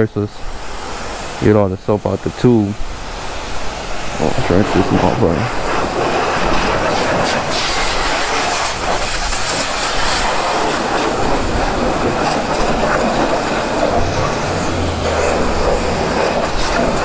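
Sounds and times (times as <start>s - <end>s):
pressure wand water jet hissing: 0.4s - 17.0s
low hum: 11.3s - 17.0s.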